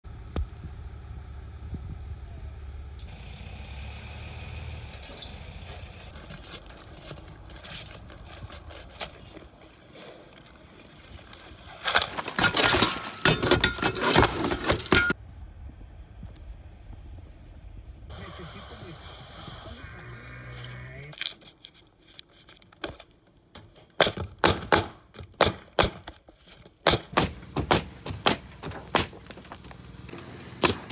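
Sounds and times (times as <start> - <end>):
low engine hum: 0.0 - 6.3, 15.2 - 21.2, 27.3 - 30.9
rapid scraping and clattering: 5.7 - 15.2.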